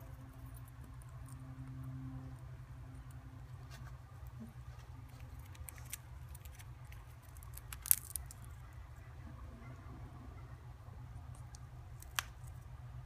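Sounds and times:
steady low hum: 0.0 - 13.0
parrot beak nibbling nut shell: 5.0 - 8.7
nut shell cracking: 5.2 - 8.6, 11.3 - 12.6.

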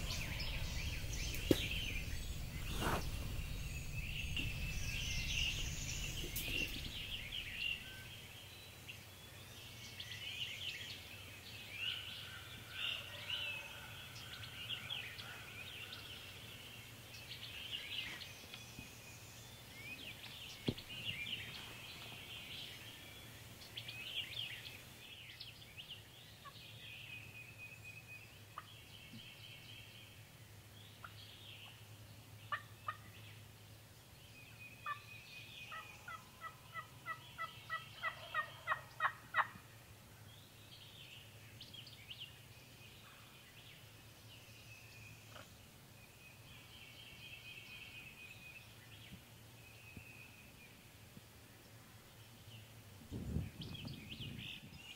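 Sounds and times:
songbirds chirping and singing: 0.0 - 54.9
turkey gobbling: 35.7 - 39.6.

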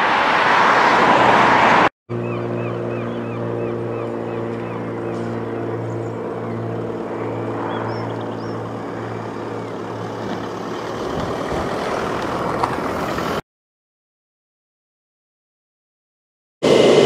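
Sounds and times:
jet engines droning hum: 2.1 - 13.4, 16.6 - 17.0.

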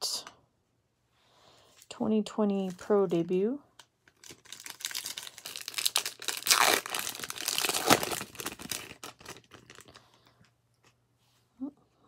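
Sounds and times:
foil wrapper crinkling and tearing: 4.0 - 10.2.

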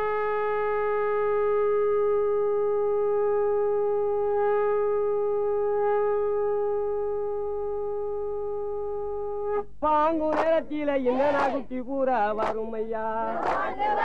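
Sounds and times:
conch shell trumpet blowing: 0.0 - 9.8.

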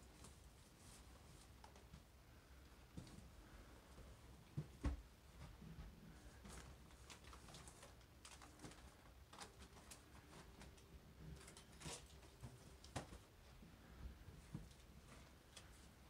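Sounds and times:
wrapped presents clicking: 6.6 - 13.2.

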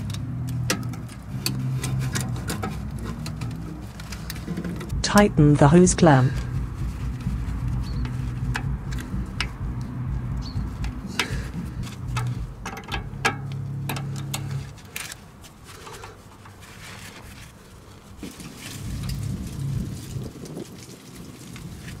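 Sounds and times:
metal clicks and scrapes: 0.0 - 4.9, 6.4 - 19.3
steady low hum: 0.0 - 16.6.

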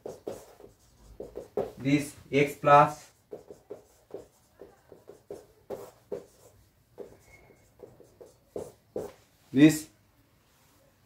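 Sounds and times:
marker pen writing on whiteboard: 0.0 - 9.4
marker pen squeak: 7.0 - 8.2.

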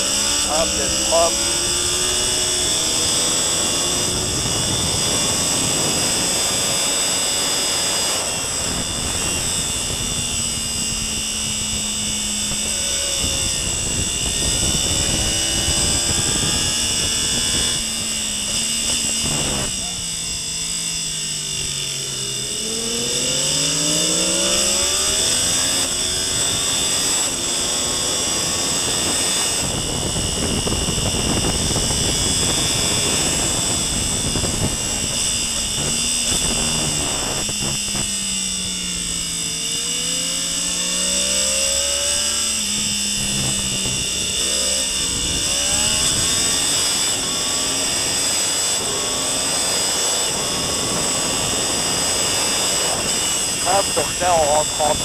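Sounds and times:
motorcycle engine revving: 0.0 - 55.0
heavy wind rush: 8.0 - 20.5, 28.1 - 38.1, 44.9 - 55.0.

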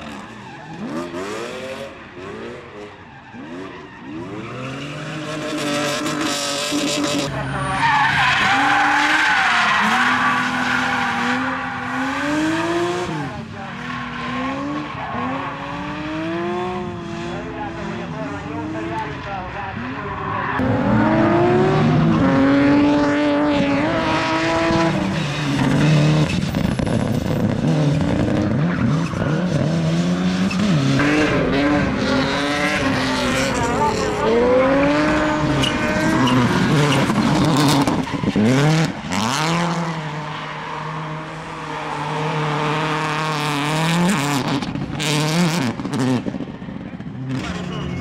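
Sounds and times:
race car engines revving: 0.0 - 48.0
tyre squeal: 6.9 - 12.3, 32.8 - 42.4.

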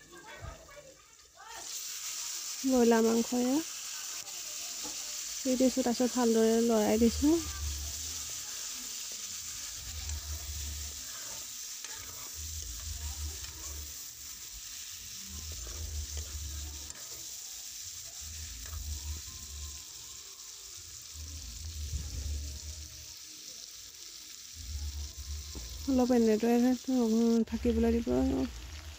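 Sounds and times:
chicken sizzling in oil: 0.0 - 28.9
metal ladle scraping a pan: 7.4 - 19.2.

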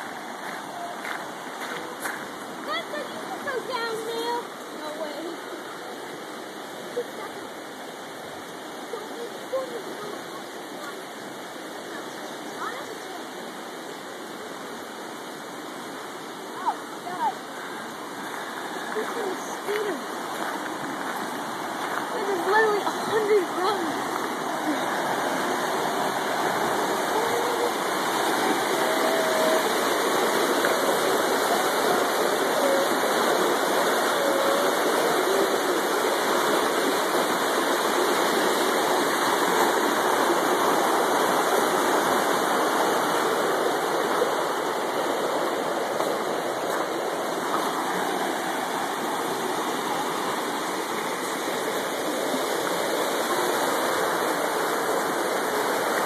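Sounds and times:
floodwater rushing: 0.0 - 56.0.

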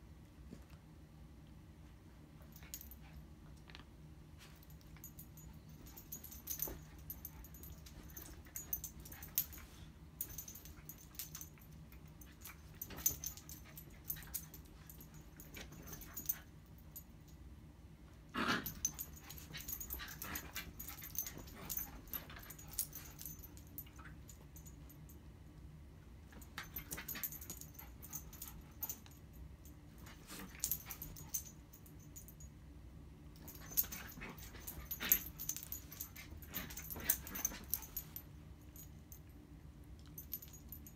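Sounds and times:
light clicks and rustles: 33.4 - 38.3.

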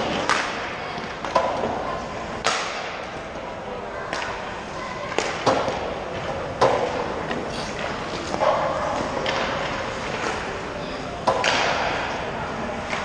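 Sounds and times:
hockey sticks and puck cracking: 0.0 - 1.8, 2.4 - 3.2, 5.1 - 10.6, 11.2 - 13.0.

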